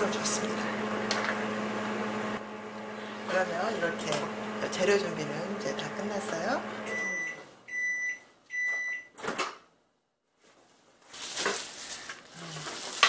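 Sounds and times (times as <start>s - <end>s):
microwave oven beeping: 6.6s - 9.2s
rustling handling noise: 10.3s - 13.0s.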